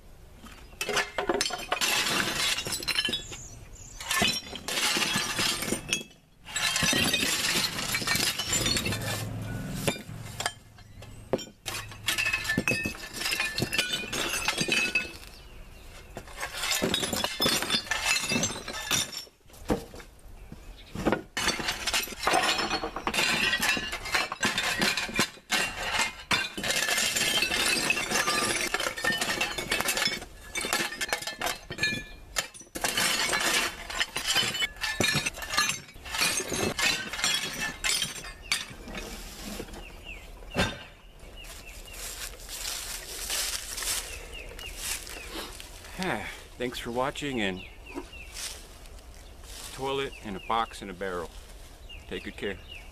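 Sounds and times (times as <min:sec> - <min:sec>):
china shards clinking: 0:00.8 - 0:15.3.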